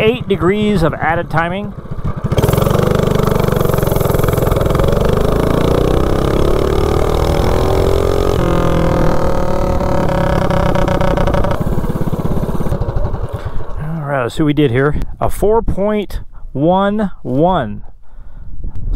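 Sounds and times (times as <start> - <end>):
minibike engine at full throttle: 0.0 - 14.0.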